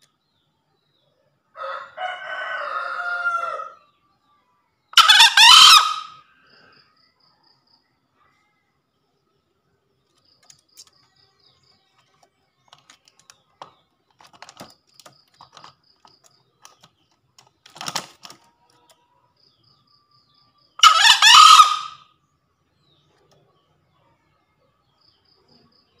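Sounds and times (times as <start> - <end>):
junglefowl crowing: 1.6 - 3.8, 5.0 - 6.3, 20.8 - 22.1
faint clicks: 10.0 - 11.2, 12.0 - 19.0.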